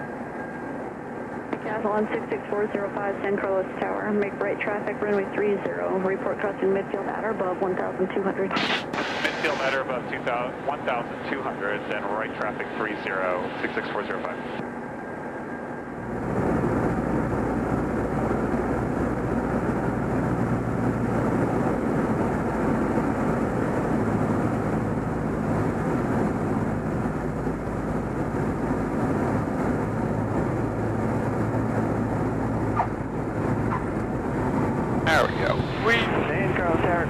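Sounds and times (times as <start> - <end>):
propeller plane engine: 0.0 - 37.0
rush of air noise: 8.5 - 10.3.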